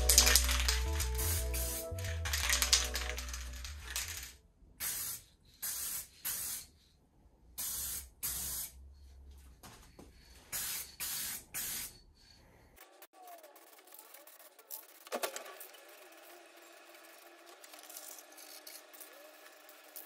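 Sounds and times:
aerosol spray can hissing: 0:00.0 - 0:06.7, 0:07.6 - 0:08.8, 0:10.5 - 0:12.0.

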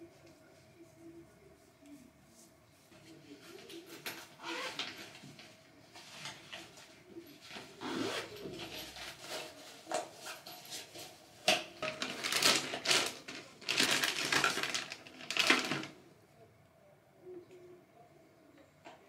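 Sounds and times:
plastic bag crinkling: 0:11.5 - 0:16.0.

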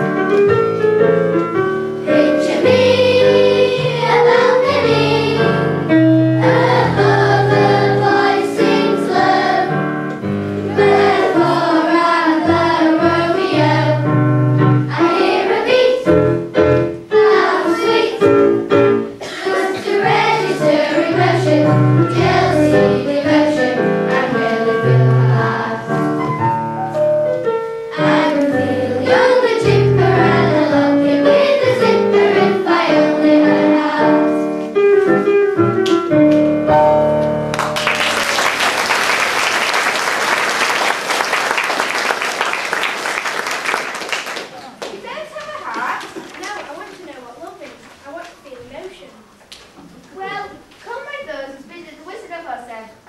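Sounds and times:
children singing: 0:02.0 - 0:09.9, 0:10.6 - 0:14.2, 0:14.8 - 0:16.2, 0:17.1 - 0:18.5, 0:19.2 - 0:26.1, 0:27.9 - 0:34.5
audience applause: 0:37.5 - 0:45.0.

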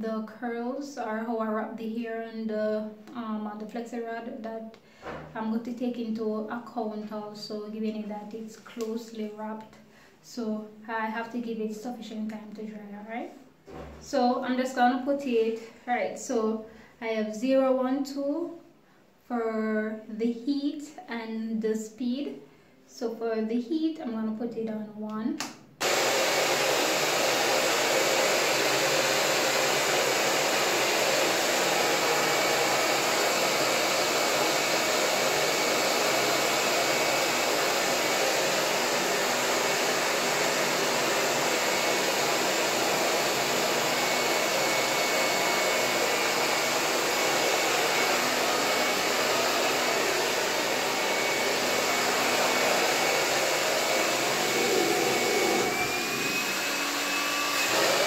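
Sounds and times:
hair dryer whirring: 0:25.8 - 0:58.0.

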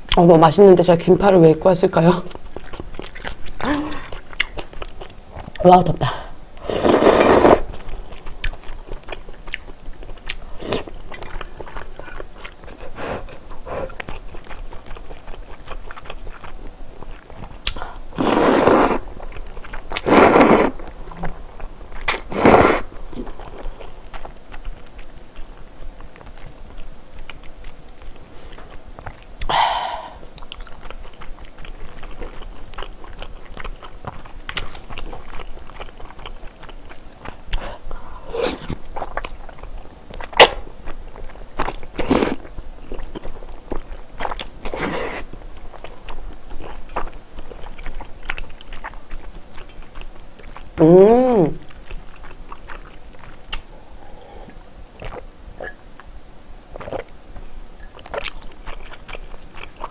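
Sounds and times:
wet chewing and mouth clicks: 0:01.9 - 0:53.7, 0:54.3 - 0:59.9
loud slurps of noodles: 0:06.6 - 0:07.7, 0:18.2 - 0:19.0, 0:20.0 - 0:20.8, 0:22.3 - 0:22.9.

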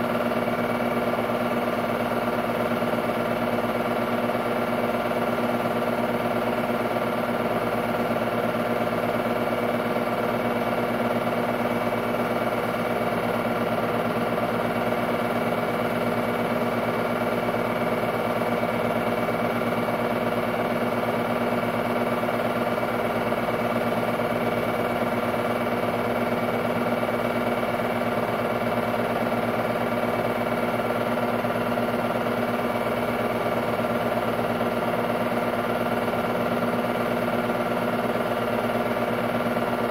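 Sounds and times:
film projector humming: 0:00.0 - 0:39.9.

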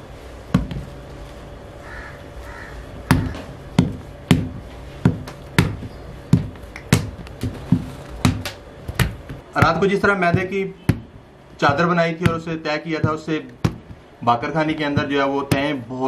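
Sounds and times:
hands slapping dough on table: 0:03.1 - 0:14.1.

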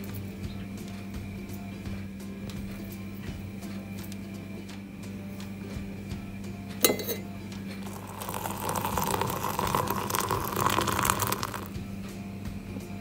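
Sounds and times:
spoon clinking on metal pot: 0:06.8 - 0:11.6
water pouring: 0:07.8 - 0:11.7.

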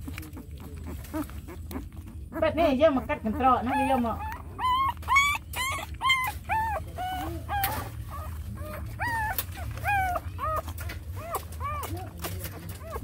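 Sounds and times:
puppies whimpering: 0:00.0 - 0:13.0.

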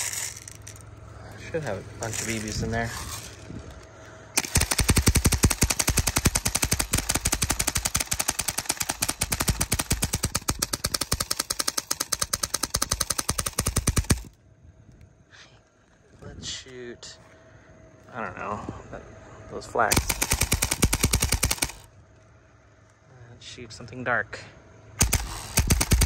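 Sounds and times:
airsoft gun rapid firing: 0:04.4 - 0:14.3, 0:19.9 - 0:21.9, 0:25.0 - 0:26.0.

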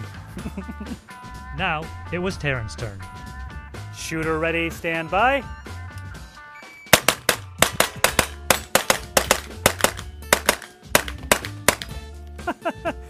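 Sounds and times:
background music: 0:00.0 - 0:13.0
rifle firing rapid shots: 0:06.9 - 0:11.9.

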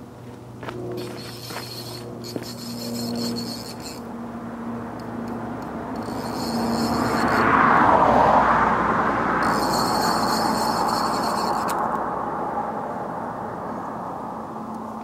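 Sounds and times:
fishing reel spool whirring: 0:00.9 - 0:08.0, 0:09.3 - 0:12.0.

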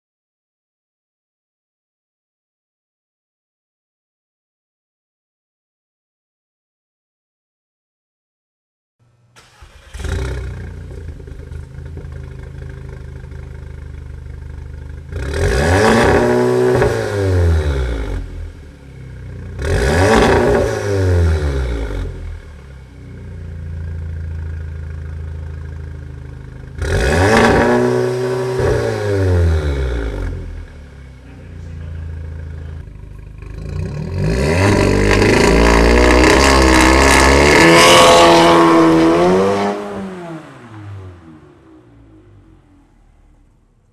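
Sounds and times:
car engine revving: 0:09.4 - 0:43.9.

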